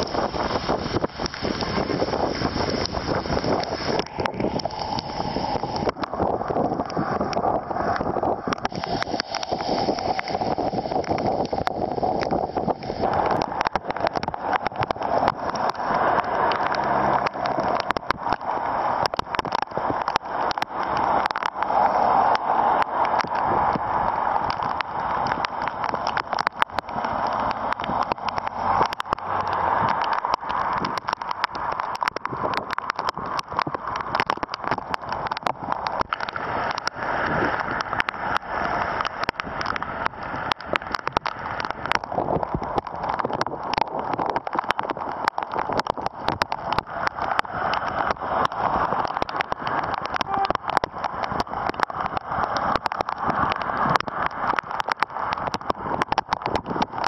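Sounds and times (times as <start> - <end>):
heavy rain on wet street: 0.0 - 57.0
raindrops ticking close by: 0.0 - 57.0.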